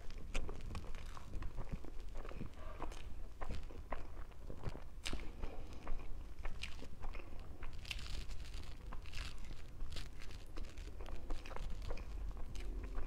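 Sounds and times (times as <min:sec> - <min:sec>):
wet bites and chewing: 0:00.0 - 0:13.0
foil crinkling: 0:06.6 - 0:13.0.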